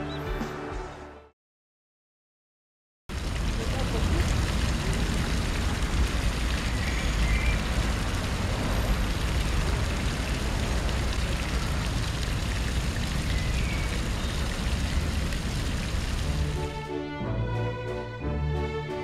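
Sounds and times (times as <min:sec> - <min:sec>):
rain-like hiss: 0:03.1 - 0:16.8.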